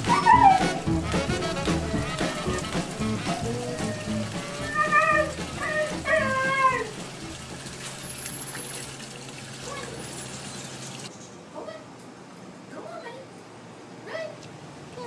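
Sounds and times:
water lapping in a bathtub: 0.0s - 11.1s.

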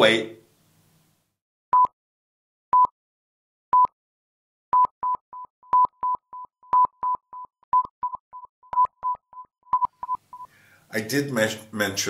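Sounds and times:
countdown beeps: 4.8s - 10.5s.

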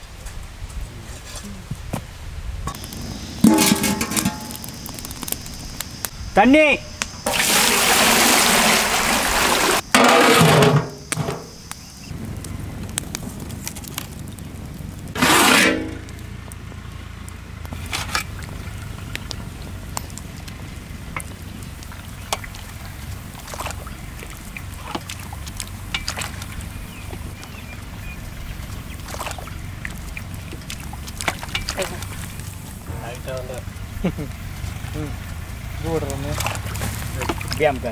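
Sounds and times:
low rumble of water heating: 0.0s - 37.9s
wood fire crackling: 0.0s - 37.9s
water poured into metal pot: 2.8s - 5.0s, 7.2s - 10.6s.

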